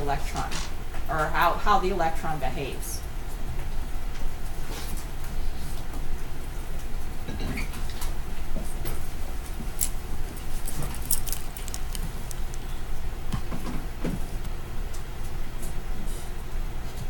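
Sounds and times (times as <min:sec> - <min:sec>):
light clicks and rustles: 0:08.9 - 0:12.8.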